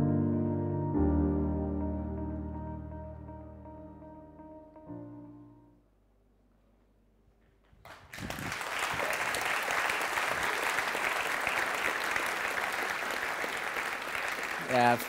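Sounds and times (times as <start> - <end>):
audience applause: 7.8 - 15.0.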